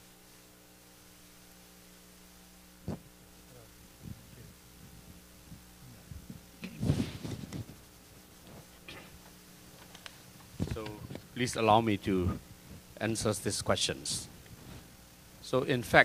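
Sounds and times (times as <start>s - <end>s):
sound system electrical hum: 0.0s - 16.0s
microphone thump: 2.8s - 3.1s, 4.0s - 7.8s, 10.6s - 11.2s
muffled voice: 2.9s - 4.6s.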